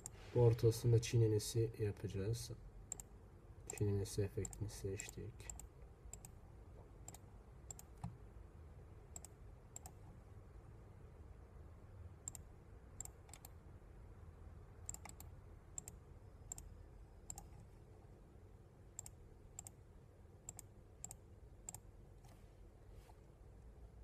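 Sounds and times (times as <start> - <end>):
computer mouse clicking: 2.9 - 3.1, 3.7 - 6.4, 7.0 - 8.2, 9.1 - 10.1, 12.2 - 13.6, 14.8 - 16.7, 17.3 - 17.7, 19.0 - 19.8, 20.5 - 22.4.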